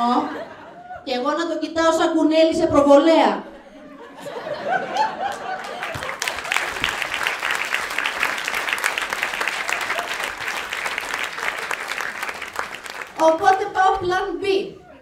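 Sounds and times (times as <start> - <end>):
large audience applauding: 4.9 - 13.8.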